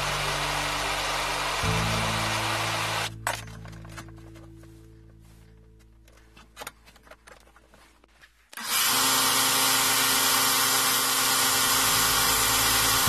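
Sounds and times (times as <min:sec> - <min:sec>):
belt grinder sanding wood: 0:00.0 - 0:03.1, 0:08.6 - 0:13.0.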